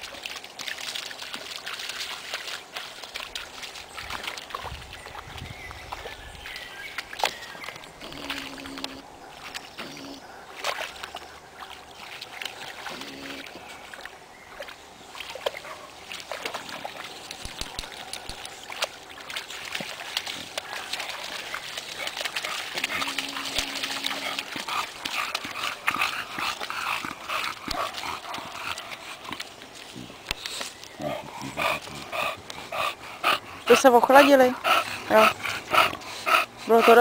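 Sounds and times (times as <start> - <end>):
rustling in wet grass: 0.0 - 37.0
splashing in water: 0.0 - 37.0
dog noises: 20.5 - 30.2, 31.0 - 37.0.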